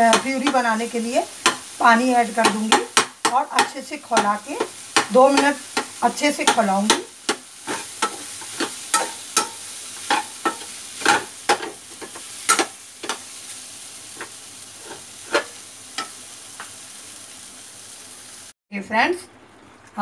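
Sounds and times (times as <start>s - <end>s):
food sizzling in a pan: 0.0s - 18.6s
ladle scraping a metal pan: 7.6s - 13.2s, 14.8s - 15.6s.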